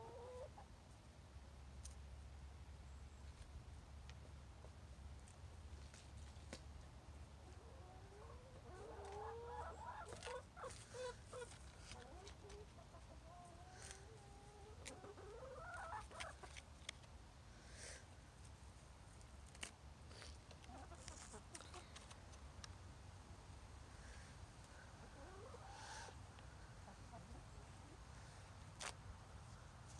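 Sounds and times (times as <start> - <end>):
hens clucking: 0.0 - 0.6, 7.4 - 17.0, 20.2 - 22.2, 24.7 - 28.1.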